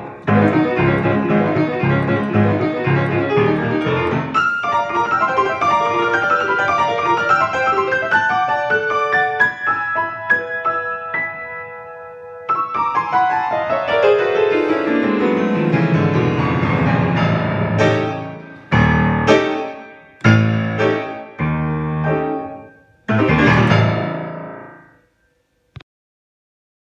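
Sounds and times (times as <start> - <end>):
solo piano: 0.0 - 25.3.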